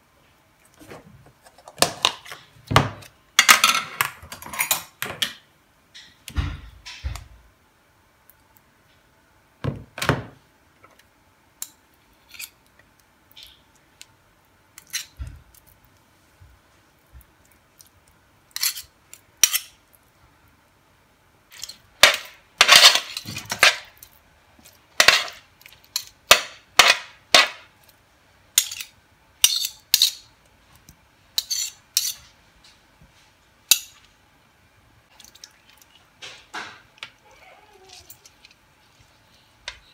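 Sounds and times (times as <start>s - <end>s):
metal spoons scraping a baking tray: 18.5s - 19.7s, 21.5s - 23.9s, 28.6s - 30.2s, 31.4s - 32.3s.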